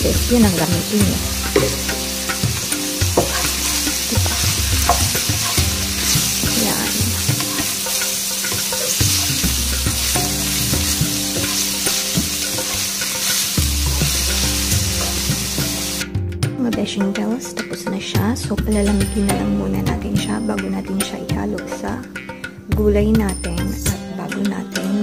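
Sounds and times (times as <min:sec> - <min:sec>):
meat sizzling in frying pan: 0:00.0 - 0:16.0
spatula scraping pan: 0:00.6 - 0:16.0.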